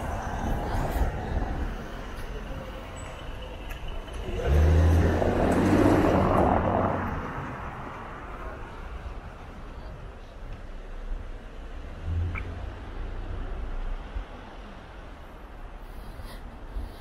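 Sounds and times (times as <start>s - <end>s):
vehicle passing by: 0.0s - 8.8s
street background noise: 0.0s - 17.0s.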